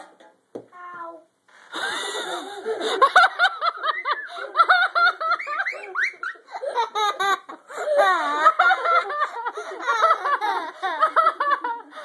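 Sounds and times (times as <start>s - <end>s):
children laughing and squealing: 3.8s - 11.6s.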